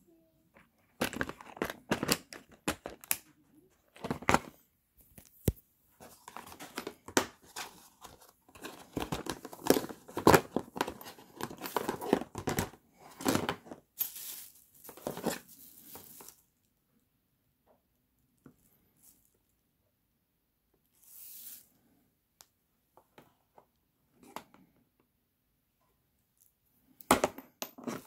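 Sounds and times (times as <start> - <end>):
plastic box clicking and scraping: 0.9 - 3.2, 6.0 - 13.8.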